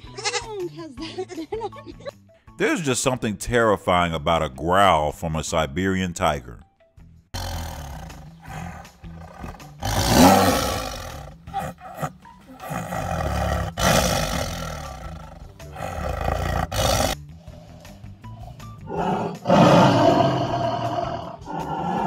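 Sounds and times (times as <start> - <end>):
tiger growling: 7.4 - 22.0.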